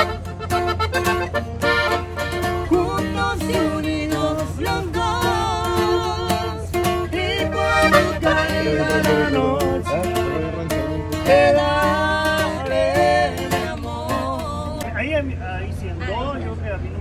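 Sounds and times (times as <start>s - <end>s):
button accordion: 0.0s - 14.9s
strummed acoustic guitar: 0.0s - 14.9s
man and woman singing: 2.3s - 15.0s.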